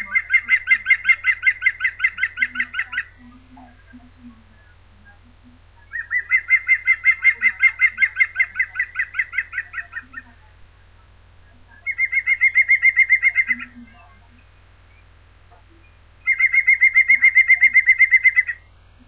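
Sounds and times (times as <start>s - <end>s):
woodpecker laughing call: 0.0s - 5.2s, 5.8s - 10.4s, 11.7s - 14.3s, 16.2s - 18.7s.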